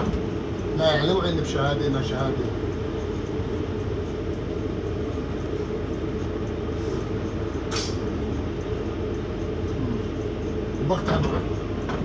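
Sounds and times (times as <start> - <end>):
bus engine drone: 0.0 - 12.0
brief hisses: 7.7 - 8.0.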